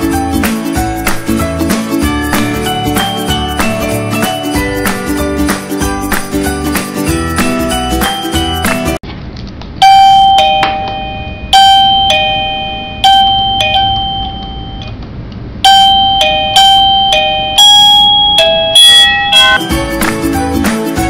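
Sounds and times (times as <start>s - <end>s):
doorbell chime tune: 2.1s - 4.9s, 9.8s - 14.9s, 15.6s - 19.8s.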